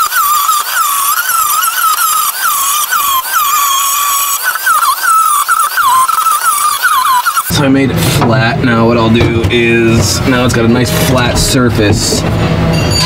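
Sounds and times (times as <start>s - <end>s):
angle grinder whining on metal: 0.0s - 8.2s.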